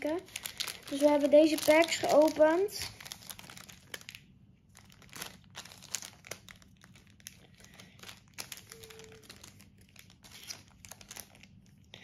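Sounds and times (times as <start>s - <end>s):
foil wrappers crinkling: 0.0s - 12.0s.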